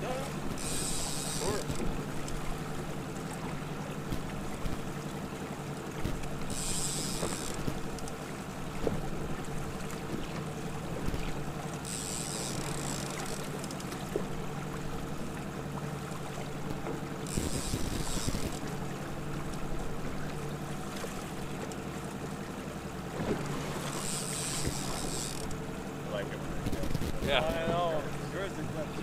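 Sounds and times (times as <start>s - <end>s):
outboard motor running: 0.0s - 29.0s
water around hull: 0.0s - 29.0s
wind: 0.0s - 29.0s.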